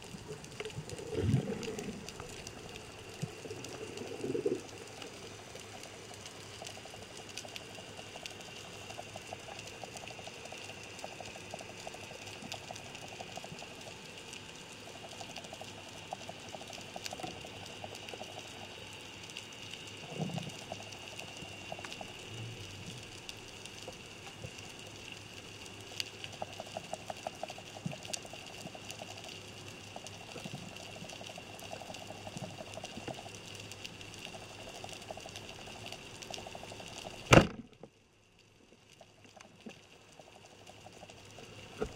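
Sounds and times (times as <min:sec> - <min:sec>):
underwater hiss: 0:00.2 - 0:05.5.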